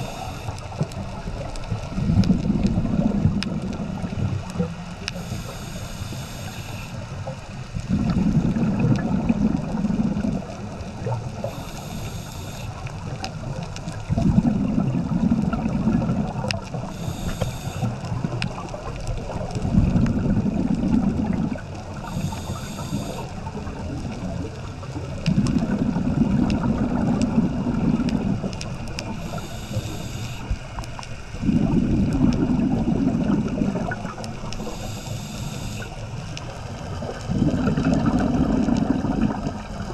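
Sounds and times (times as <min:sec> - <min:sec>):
regulator hissing inhale: 0:00.0 - 0:00.7, 0:05.1 - 0:07.0, 0:11.4 - 0:12.8, 0:16.9 - 0:18.0, 0:22.0 - 0:23.3, 0:29.1 - 0:30.6, 0:34.6 - 0:36.0
low bubbling of exhaled air: 0:00.0 - 0:05.7, 0:07.8 - 0:36.0, 0:36.7 - 0:39.9.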